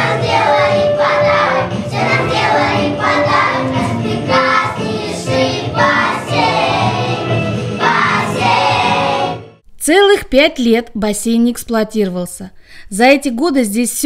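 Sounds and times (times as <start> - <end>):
children singing in unison: 0.0 - 9.6.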